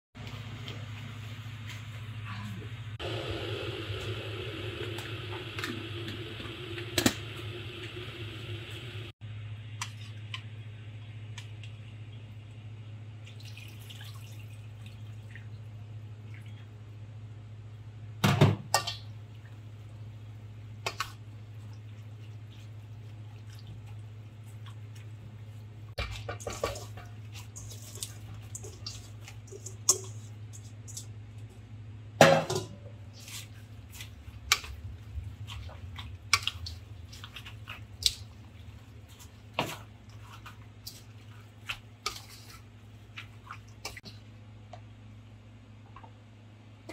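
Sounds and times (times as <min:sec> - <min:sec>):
steady low hum: 0:19.0 - 0:46.9.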